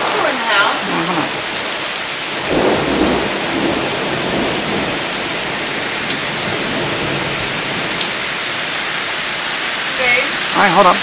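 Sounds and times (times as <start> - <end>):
low thunder rumble: 0.0 - 8.7
heavy rain pouring: 0.0 - 11.0.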